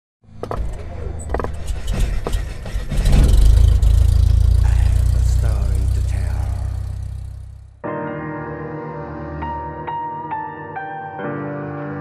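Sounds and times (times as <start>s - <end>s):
deep cinematic rumble: 0.4s - 7.8s.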